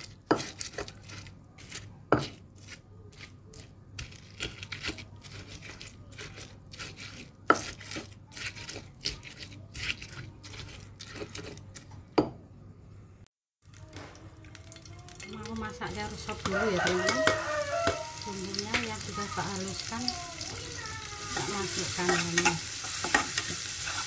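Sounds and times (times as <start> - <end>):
stone pestle pounding in mortar: 0.2 - 1.0, 1.6 - 2.4, 4.0 - 11.5.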